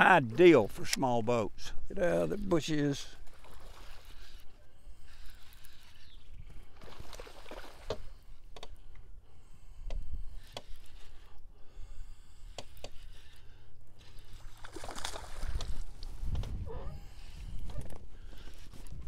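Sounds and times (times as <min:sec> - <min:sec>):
water splashing and lapping: 0:02.0 - 0:08.9, 0:12.1 - 0:19.0.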